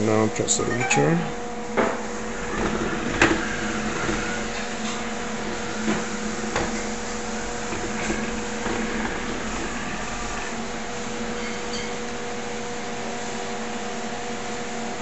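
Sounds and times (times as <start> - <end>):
robot vacuum motor hum: 2.0 - 11.4.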